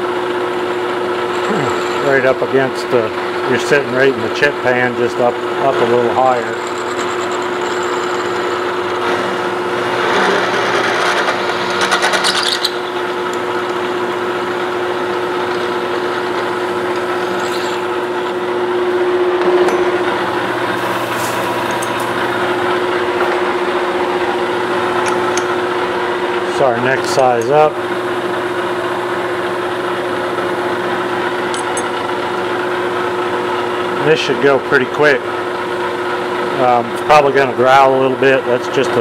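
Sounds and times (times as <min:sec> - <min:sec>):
metal lathe humming: 0:00.0 - 0:39.0
drill boring into metal: 0:01.0 - 0:03.5, 0:05.5 - 0:18.5.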